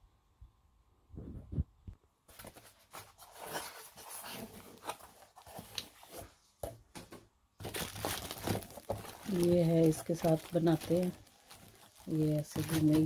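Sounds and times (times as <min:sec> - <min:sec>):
paper rustling on polystyrene: 0:02.3 - 0:06.4, 0:07.6 - 0:13.0.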